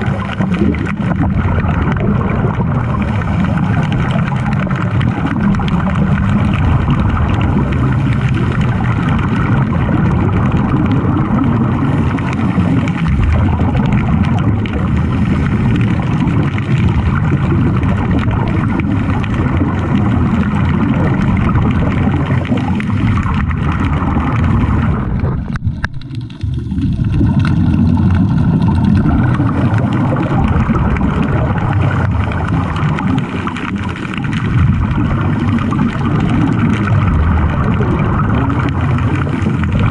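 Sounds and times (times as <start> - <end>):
underwater rumble with hiss: 0.0 - 39.9.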